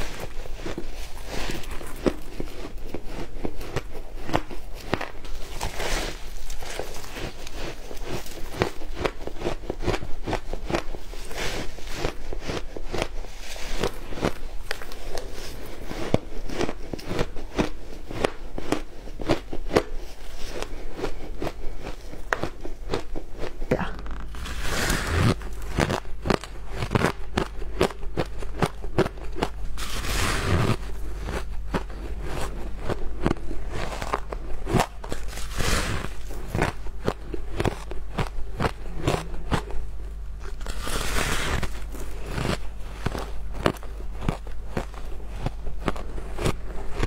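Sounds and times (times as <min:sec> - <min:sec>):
crunching ice: 0:00.0 - 0:47.0
low steady hum: 0:00.0 - 0:47.0.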